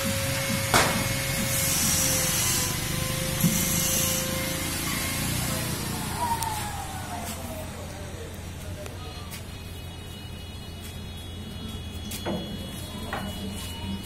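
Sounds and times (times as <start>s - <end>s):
machine whine: 0.0s - 8.5s
workshop machinery hum: 0.0s - 14.0s
short bursts of hissing: 1.6s - 2.6s.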